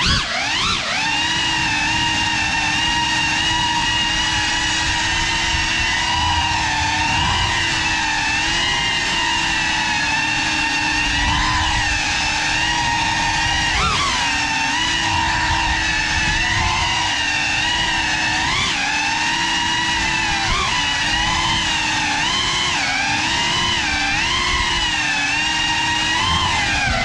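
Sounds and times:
drone motors whining: 0.0 - 27.0.

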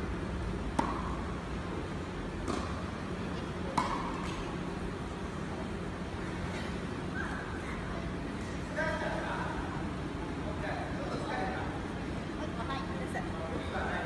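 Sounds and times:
steady low hum: 0.0 - 14.0
tennis balls struck by rackets: 0.5 - 5.0.

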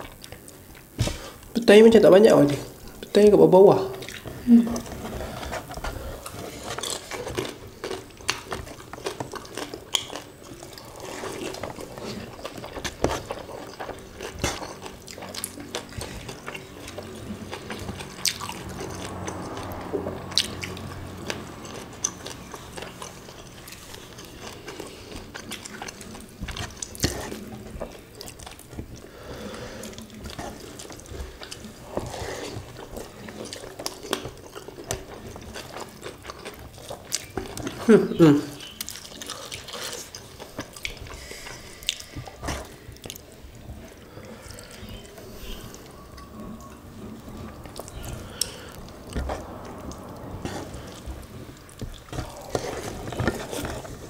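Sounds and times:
wet chewing and lip smacks: 6.8 - 29.1, 38.6 - 51.0.

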